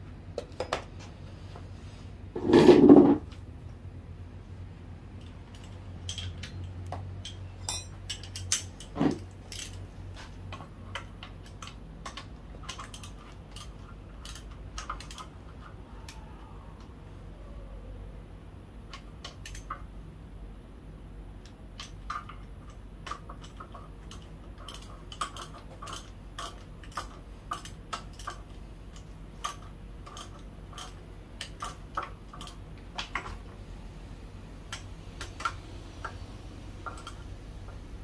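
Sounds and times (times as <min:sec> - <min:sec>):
faint low hum: 0:00.0 - 0:38.0
metal tools clinking: 0:05.5 - 0:09.9.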